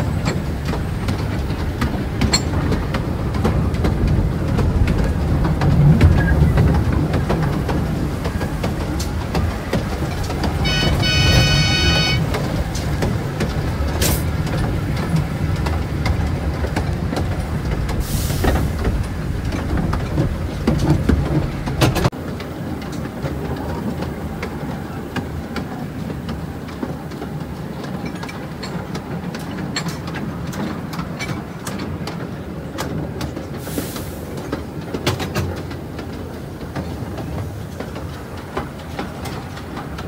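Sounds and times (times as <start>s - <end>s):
small train rumbling on track: 0.0s - 40.0s
wheels clicking over rail joints: 0.0s - 40.0s
high squeal: 10.6s - 12.2s.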